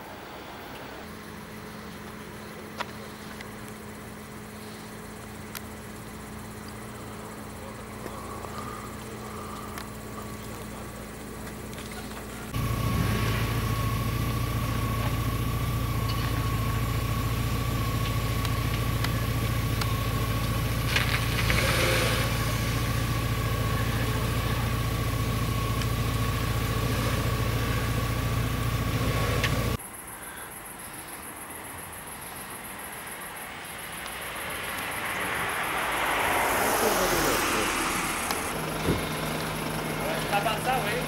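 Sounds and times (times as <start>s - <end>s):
high whine: 0.0s - 29.8s
vehicle engine idling: 0.6s - 30.4s, 33.8s - 41.0s.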